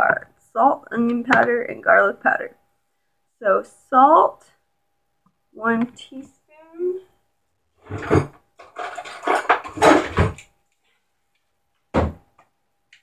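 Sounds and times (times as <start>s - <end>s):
spice jars and bottles clattering: 7.9s - 10.4s.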